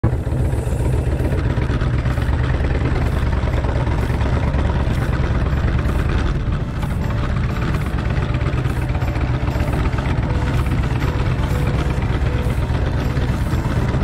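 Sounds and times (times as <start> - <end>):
motorcycle engine rumbling: 0.0 - 14.0.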